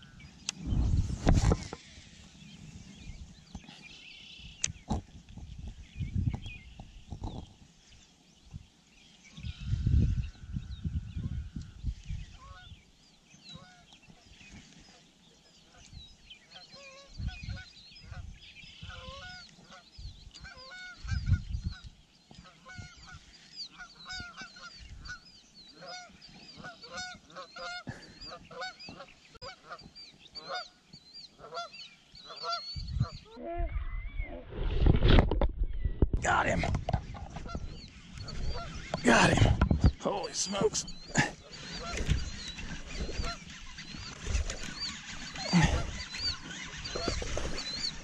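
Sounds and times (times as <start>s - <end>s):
wind gusts on microphone: 0.0s - 3.7s, 4.5s - 7.7s, 9.3s - 12.8s, 17.1s - 22.0s, 32.7s - 48.0s
flock of birds calling: 9.1s - 34.3s, 36.2s - 48.0s.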